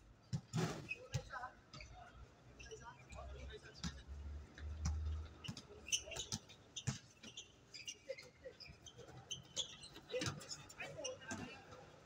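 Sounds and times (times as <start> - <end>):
sneakers squeaking on court: 4.8 - 11.7.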